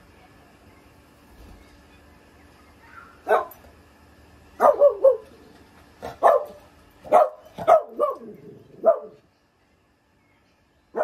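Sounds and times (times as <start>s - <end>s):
small dog barking: 3.2s - 3.6s, 4.6s - 5.4s, 6.0s - 9.2s.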